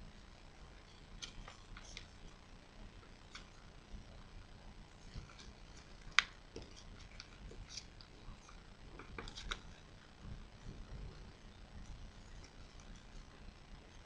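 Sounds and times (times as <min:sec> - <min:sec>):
paper crinkling as it is folded: 0:01.2 - 0:02.4, 0:05.0 - 0:09.9.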